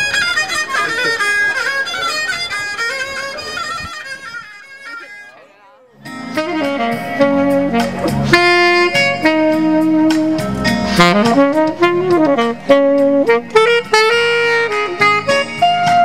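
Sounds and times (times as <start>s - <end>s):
jazz saxophone: 6.1s - 16.0s.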